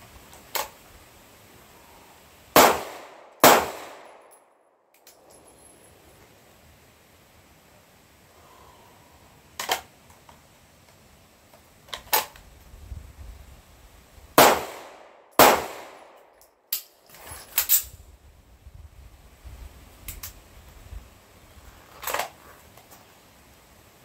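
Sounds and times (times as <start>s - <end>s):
pistol shots: 2.6s - 4.3s, 14.4s - 16.2s.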